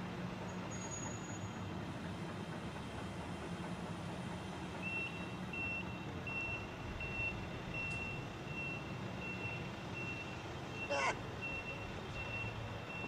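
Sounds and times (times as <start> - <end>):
low engine rumble: 0.0 - 13.0
reversing alarm beeping: 4.8 - 13.0.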